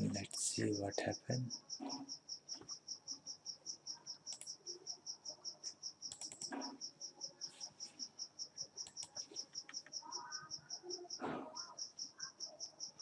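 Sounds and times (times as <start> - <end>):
cricket chirping: 0.0 - 13.0
computer mouse clicks: 4.3 - 4.7, 5.6 - 6.8, 8.8 - 10.4.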